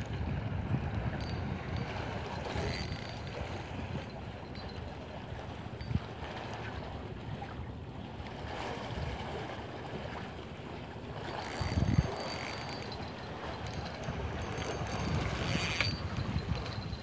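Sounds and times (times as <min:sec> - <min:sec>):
wind buffeting microphone: 0:00.0 - 0:07.7, 0:11.1 - 0:17.0
choppy sea water: 0:00.0 - 0:17.0.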